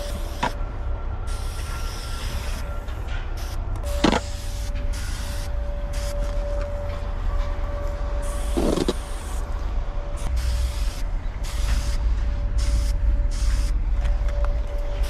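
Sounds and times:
low rumble: 2.6 - 15.0
spray paint can hissing: 4.2 - 6.1, 10.2 - 12.0, 12.6 - 13.8.

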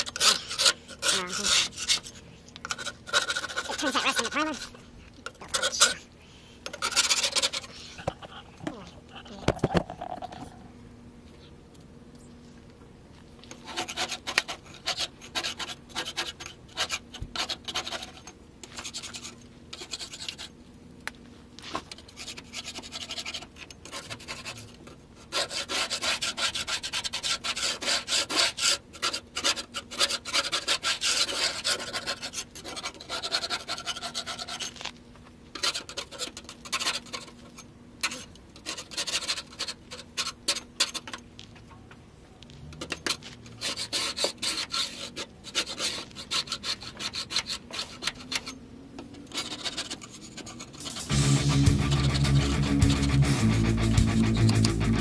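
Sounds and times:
hand scraper rasping metal: 0.0 - 4.7, 6.7 - 7.7, 13.6 - 20.5, 22.0 - 24.6, 25.2 - 34.7, 38.0 - 41.2, 42.9 - 48.5, 49.3 - 55.0.

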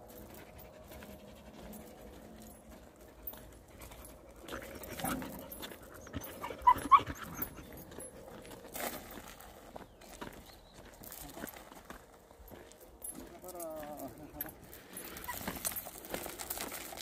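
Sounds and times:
dog panting: 0.1 - 8.4.

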